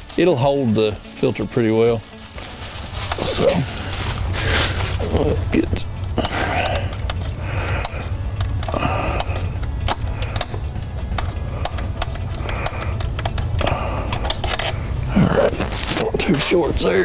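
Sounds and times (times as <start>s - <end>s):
steady low hum: 1.9s - 17.0s
hands clicking and tapping metal parts: 5.0s - 17.0s.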